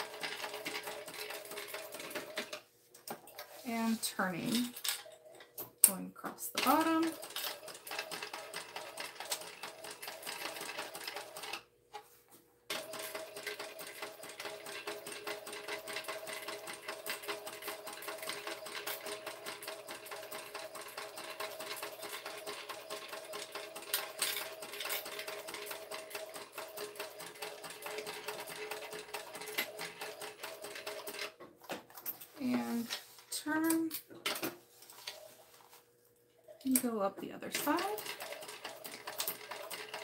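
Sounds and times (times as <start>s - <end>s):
sewing machine stitching: 0.0s - 2.6s, 6.6s - 11.6s, 12.7s - 31.3s, 37.5s - 40.0s.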